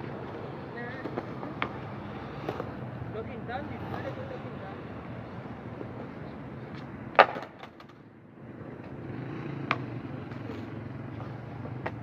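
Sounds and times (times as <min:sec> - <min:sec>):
skateboard clattering on concrete: 0:00.0 - 0:02.9, 0:05.7 - 0:08.0.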